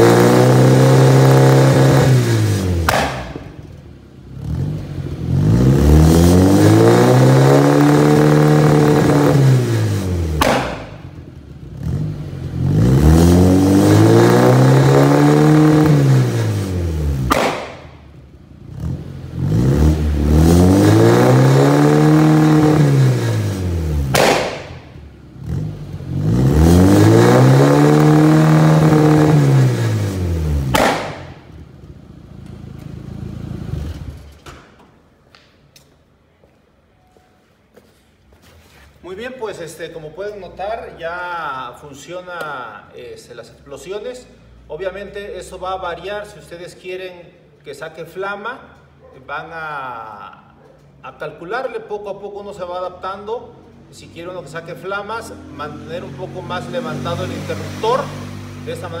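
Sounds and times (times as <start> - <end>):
car engine revving: 0.0 - 34.4, 54.8 - 59.0
exhaust bangs: 0.0 - 34.8.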